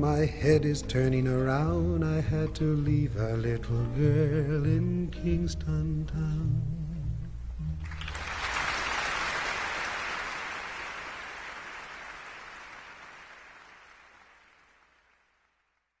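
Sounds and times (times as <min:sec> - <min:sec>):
audience applause: 0:07.9 - 0:15.5.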